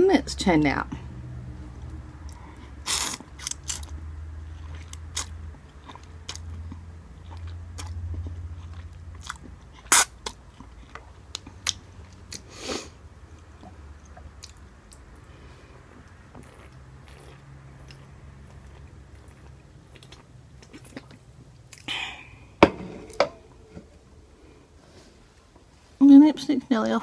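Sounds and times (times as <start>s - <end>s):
person chewing and slurping: 2.3s - 3.9s, 15.9s - 21.9s.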